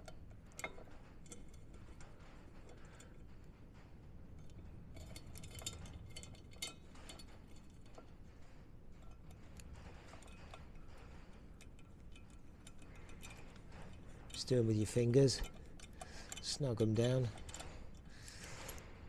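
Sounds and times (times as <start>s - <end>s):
small metallic clicks: 9.0s - 19.0s.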